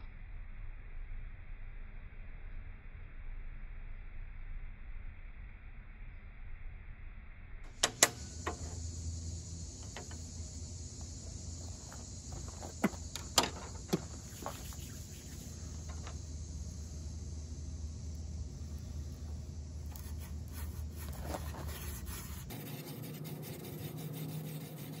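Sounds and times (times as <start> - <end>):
steady high hiss: 7.7 - 25.0.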